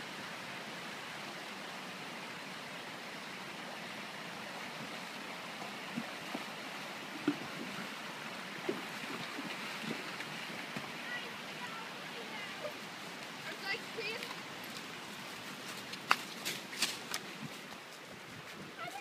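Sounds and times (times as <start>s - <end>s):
stream rushing: 0.0s - 19.0s
hooves splashing through water: 4.4s - 19.0s.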